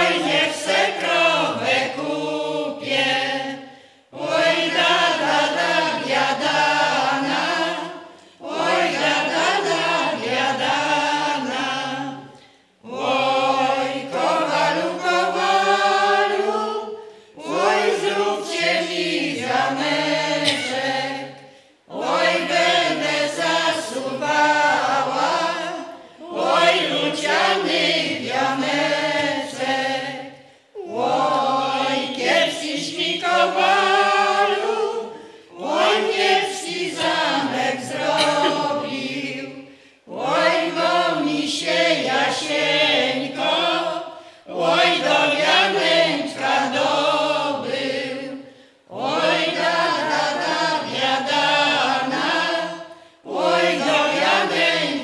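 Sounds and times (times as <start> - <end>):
mixed choir singing folk song: 0.0 - 55.0.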